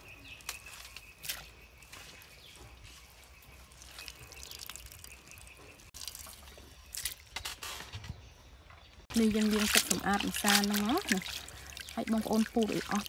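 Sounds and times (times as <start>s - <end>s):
water dripping and splashing: 2.9s - 7.5s, 9.1s - 13.0s.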